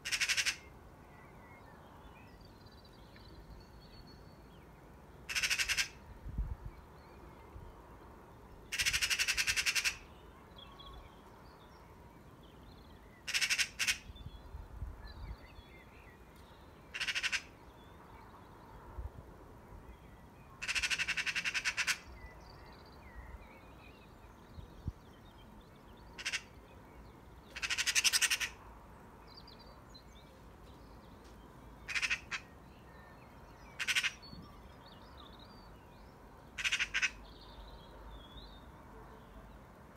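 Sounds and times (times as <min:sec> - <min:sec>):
magpie rattling chatter: 0:00.0 - 0:00.6, 0:05.3 - 0:06.0, 0:08.7 - 0:10.0, 0:13.3 - 0:14.1, 0:17.0 - 0:17.5, 0:20.6 - 0:22.0, 0:26.2 - 0:26.5, 0:27.6 - 0:28.6, 0:31.9 - 0:32.4, 0:33.8 - 0:34.2, 0:36.6 - 0:37.2.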